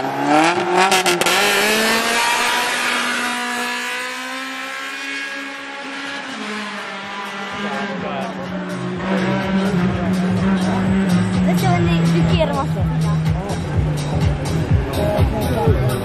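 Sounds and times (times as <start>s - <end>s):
race car engine revving: 0.0s - 16.0s
car engine idling: 6.9s - 16.0s.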